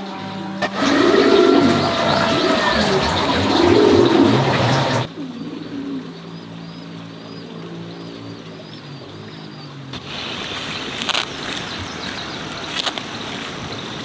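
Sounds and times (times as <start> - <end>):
dove cooing: 0.7 - 6.5
loud hiss: 10.0 - 13.2.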